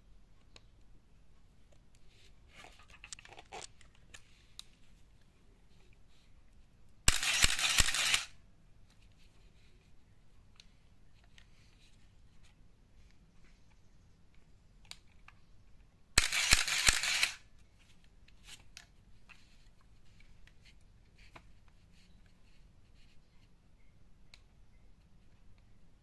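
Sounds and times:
motorised film advance whir: 7.1 - 8.3, 16.2 - 17.4
camera shutter clacks: 7.1 - 8.4, 16.2 - 17.4.

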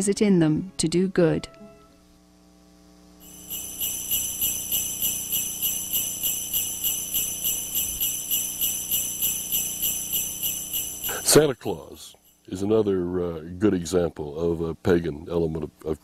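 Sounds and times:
sleigh bells jingling: 3.2 - 12.8.

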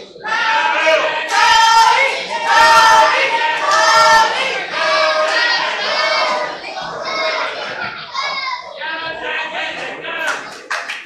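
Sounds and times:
crowd chanting in unison: 0.0 - 10.5.

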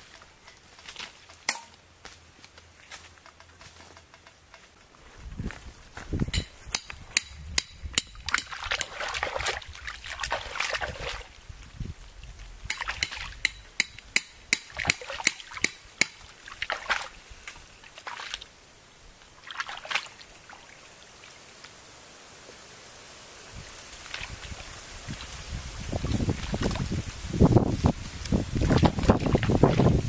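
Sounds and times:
roots snapping and clicking: 6.3 - 11.4
water sloshing and splashing: 8.2 - 11.4, 14.7 - 18.6, 19.2 - 21.4, 23.9 - 27.4, 28.3 - 30.0.

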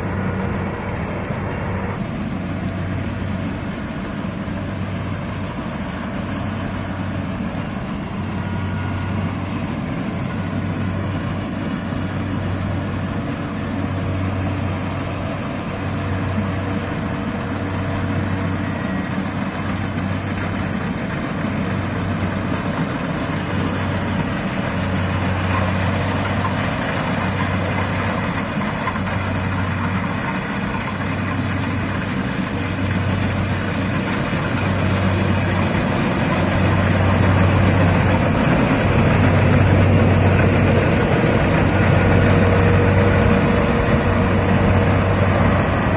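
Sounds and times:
combine harvester running: 0.0 - 45.9.

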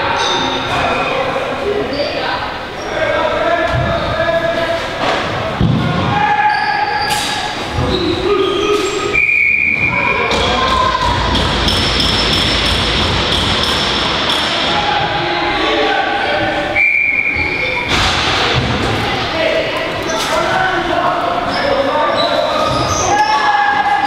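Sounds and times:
people shouting in arena: 14.4 - 16.6, 22.6 - 24.0.

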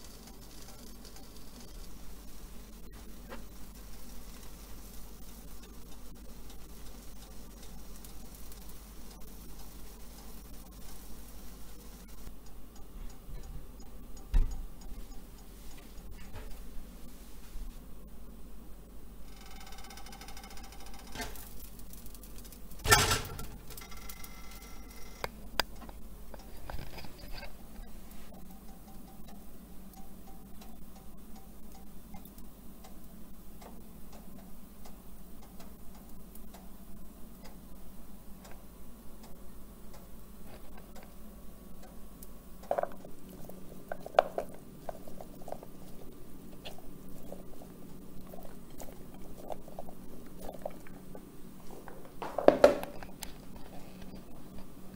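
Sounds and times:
faint ticks: 0.0 - 16.6, 23.8 - 52.0
low steady hum: 0.0 - 54.9
berries tapping onto pancakes: 42.6 - 54.2.

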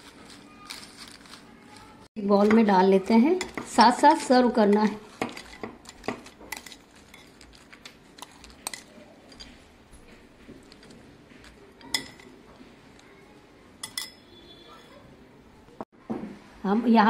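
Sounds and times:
spoon clinking against glass bowl: 11.8 - 12.3, 13.8 - 14.9.

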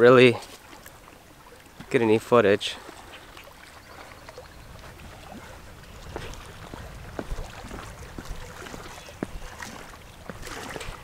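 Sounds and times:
wind on microphone: 3.9 - 11.0.

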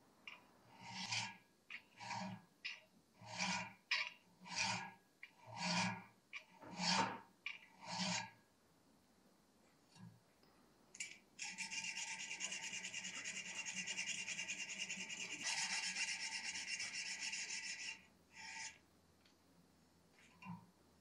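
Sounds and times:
hand file rasping on steel blade: 0.7 - 2.4, 3.2 - 3.8, 4.4 - 7.2, 7.8 - 8.4, 11.4 - 18.8.

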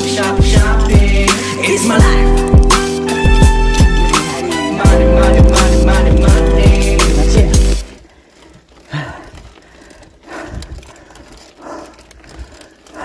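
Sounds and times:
cyclist breathing hard: 8.0 - 13.0.

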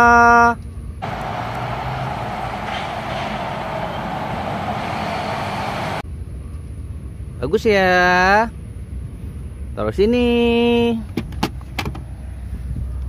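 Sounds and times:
bus engine running rumble: 0.8 - 7.3
loud horn-like tone: 1.0 - 6.0.

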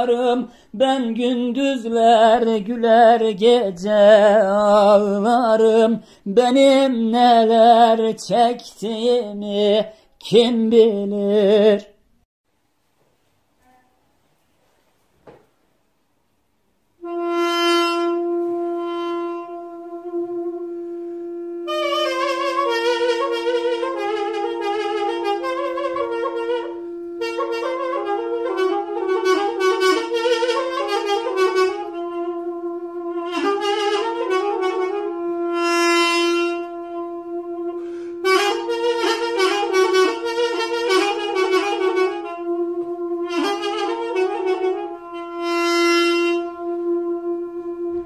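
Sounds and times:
reedy wind instrument melody: 17.0 - 48.0.

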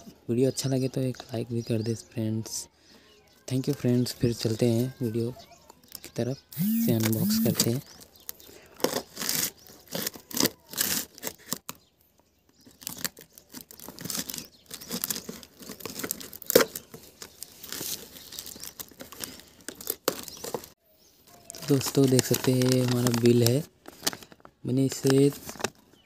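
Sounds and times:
tape and cardboard tearing: 6.6 - 11.8, 12.6 - 20.7
scissors cutting packing tape: 8.8 - 11.7.

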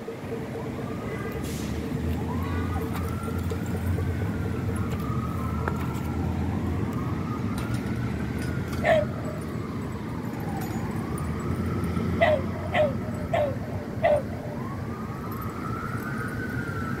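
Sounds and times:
emergency siren wailing: 0.0 - 17.0
dog barking: 8.8 - 9.1, 12.2 - 14.3.

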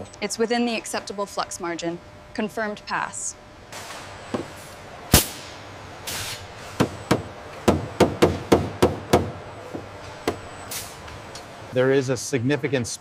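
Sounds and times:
brief hiss: 6.1 - 6.8.

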